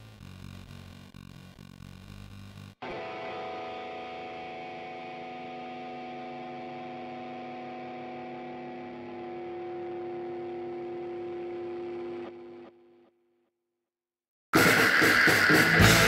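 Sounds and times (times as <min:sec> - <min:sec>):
drone chord: 0:14.6 - 0:16.0.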